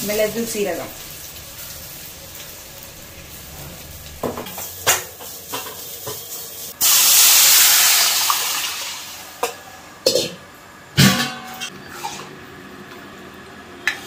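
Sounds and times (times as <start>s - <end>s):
loud hiss and sizzle in hot oil: 0.0s - 9.8s.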